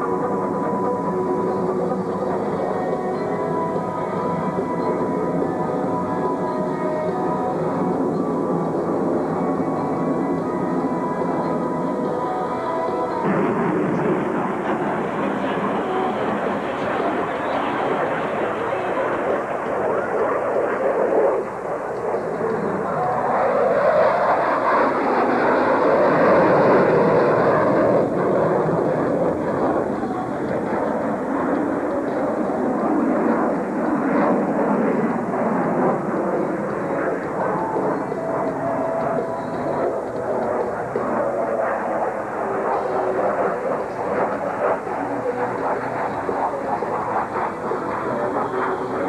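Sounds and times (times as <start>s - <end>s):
fighter jet flying past: 12.8s - 49.0s.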